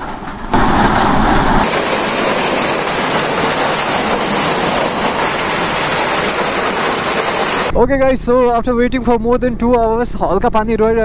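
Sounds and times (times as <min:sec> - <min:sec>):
rain falling: 0:00.0 - 0:07.7
waterfall rushing: 0:00.5 - 0:07.7.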